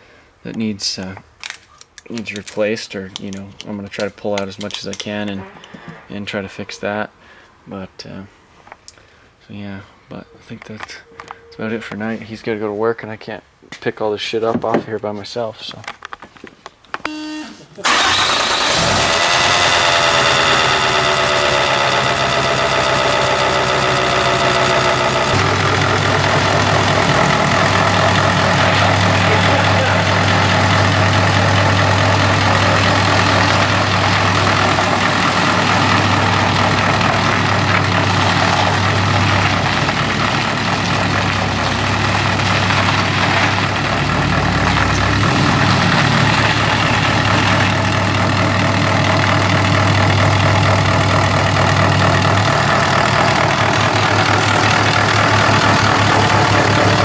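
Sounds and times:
diesel engine idling: 17.8 - 57.0.

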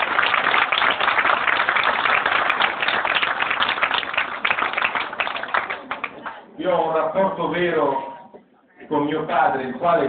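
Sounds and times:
crowd applauding: 0.0 - 6.4.

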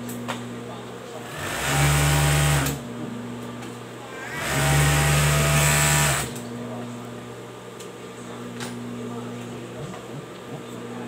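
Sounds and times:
overlocker motor stitching: 1.3 - 2.8, 4.1 - 6.4.

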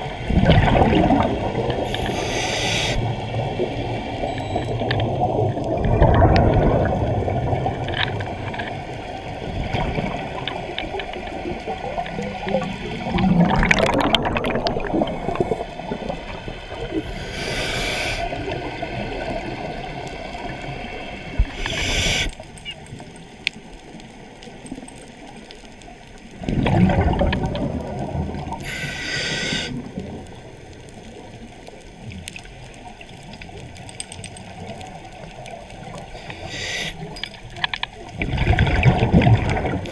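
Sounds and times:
bubbling regulator exhalations: 0.3 - 3.0, 12.4 - 16.2, 26.4 - 29.9
hissing regulator inhalations: 1.9 - 3.2, 17.1 - 18.4, 21.5 - 22.4, 28.6 - 29.9, 36.1 - 37.2.

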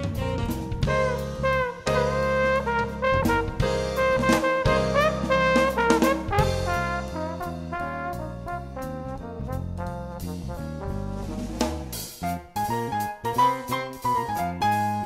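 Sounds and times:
brass horns playing: 0.0 - 11.6
stepping bass line: 0.0 - 15.0.

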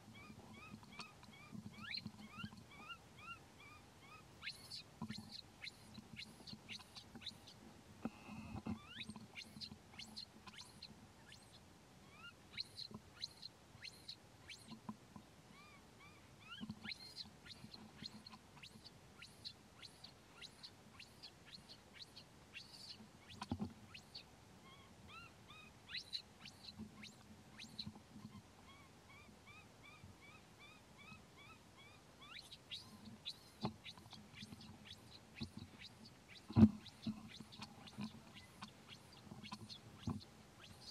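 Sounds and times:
baby monkey squeaking: 0.2 - 7.5, 8.8 - 14.7, 15.5 - 40.9.

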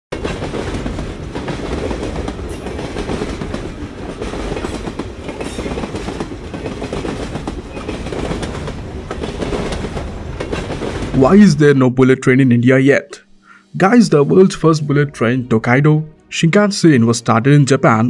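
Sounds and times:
wheels clattering on track: 0.1 - 11.2
high-speed train running on rails: 0.1 - 12.0.

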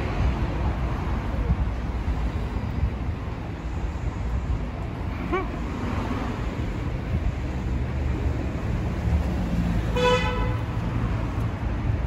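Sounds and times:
city traffic rumble: 0.0 - 12.0.

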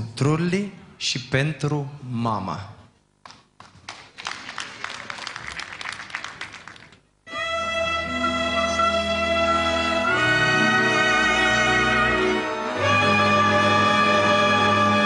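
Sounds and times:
audience applauding: 3.6 - 7.1
folk orchestra playing: 7.3 - 15.0.

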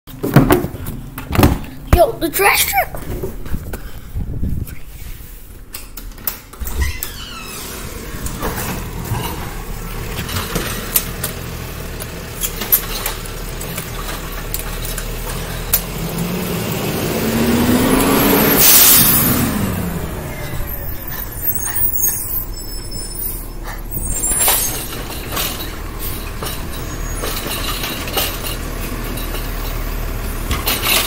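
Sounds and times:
garbage truck diesel engine: 6.6 - 31.0.

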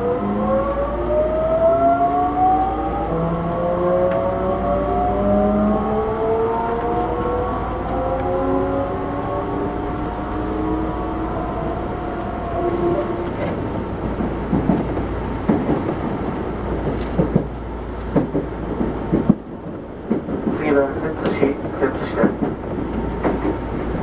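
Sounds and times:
train rumbling: 0.0 - 24.0
wheels knocking over rail joints: 13.1 - 23.7.

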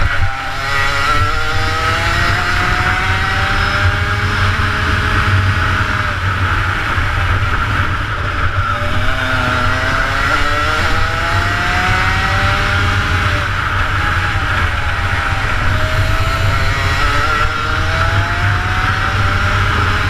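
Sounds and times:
kart two-stroke engine revving: 0.0 - 20.0.

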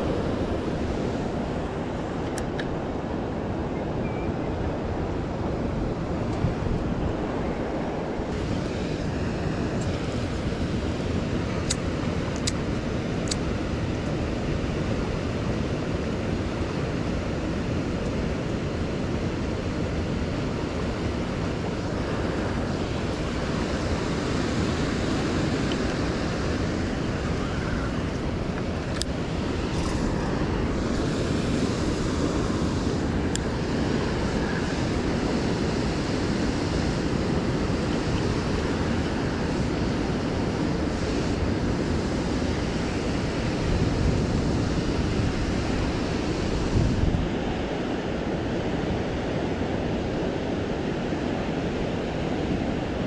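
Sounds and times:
rushing whitewater roar: 0.0 - 53.0.

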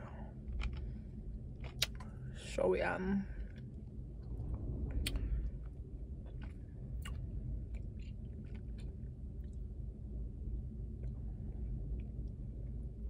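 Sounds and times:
low car interior hum: 0.0 - 13.0
lip smacks while eating: 1.6 - 2.1.

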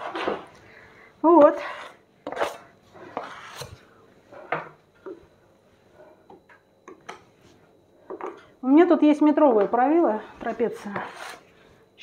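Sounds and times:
trowel scraping plaster: 1.6 - 3.8, 10.9 - 11.4.

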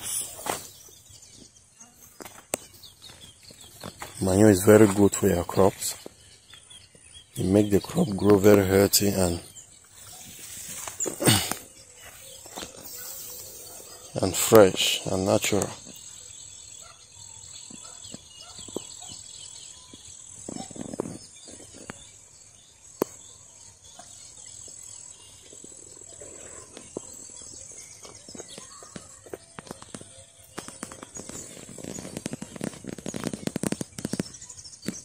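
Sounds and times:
bird chirps: 0.0 - 35.0
soft rustles and thumps: 25.5 - 35.0.

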